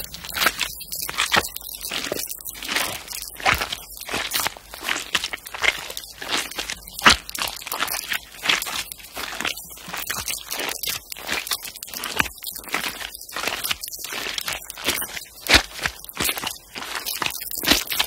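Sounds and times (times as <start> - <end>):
paper being crinkled: 0.0 - 12.4.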